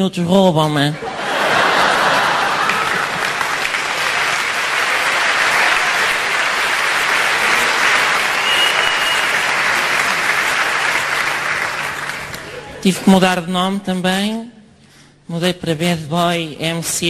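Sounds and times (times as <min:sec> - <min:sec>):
audience applauding: 0:01.2 - 0:12.8.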